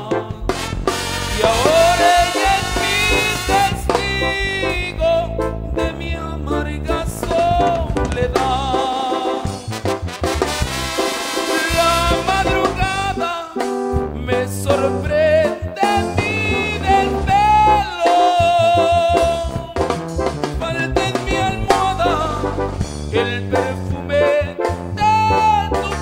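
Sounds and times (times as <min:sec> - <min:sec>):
brass melody: 0:00.0 - 0:26.0
steady bass line: 0:00.0 - 0:26.0.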